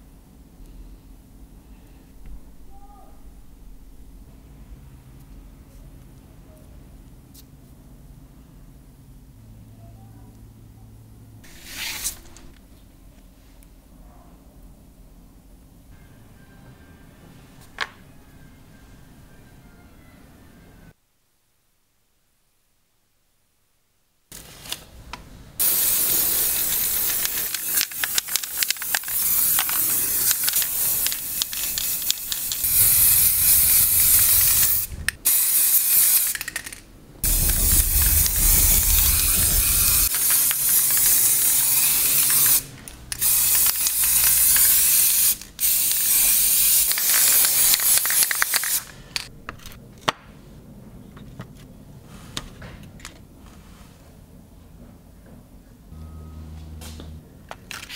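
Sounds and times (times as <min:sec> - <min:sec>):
spray paint hissing: 0:25.6 - 0:36.6, 0:37.2 - 0:48.9.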